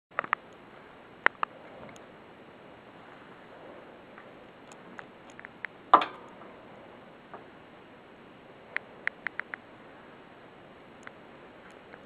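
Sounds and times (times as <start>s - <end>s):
low hiss: 0.2s - 12.0s
sharp clicks and knocks: 4.7s - 6.4s.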